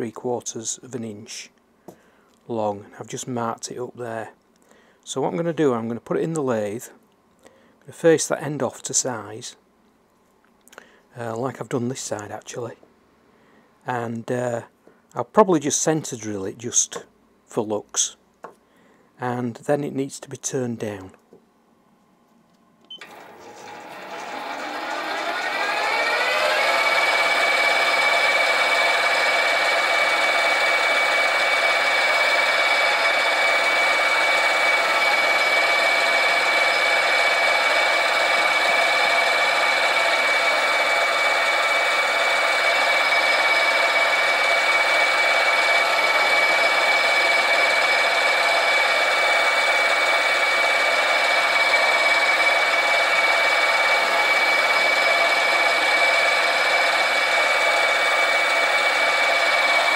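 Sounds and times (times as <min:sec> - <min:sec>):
lathe motor and gear whine: 0:23.0 - 0:59.9.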